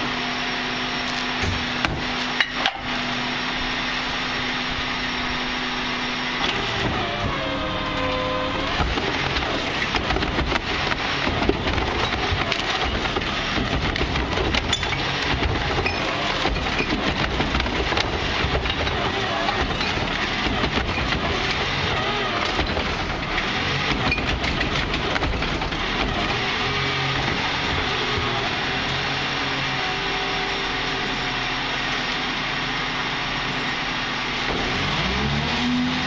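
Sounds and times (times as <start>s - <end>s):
garbage truck engine running: 0.0s - 36.0s
hydraulic whine: 0.0s - 36.0s
knocks and rattles from cart tipper: 8.6s - 28.8s.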